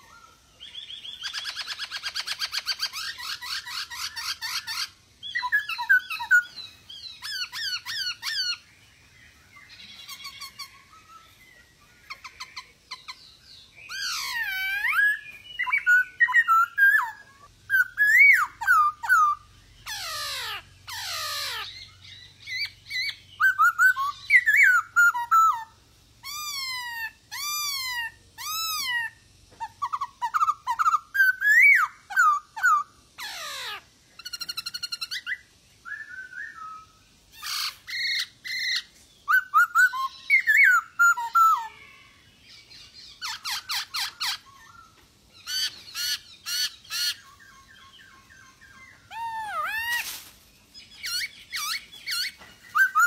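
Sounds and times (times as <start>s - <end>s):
laughingthrush singing: 9.6s - 36.0s.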